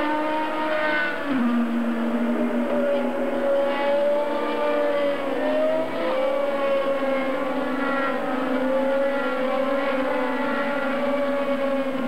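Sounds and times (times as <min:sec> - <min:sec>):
race car engines passing: 0:00.0 - 0:12.0.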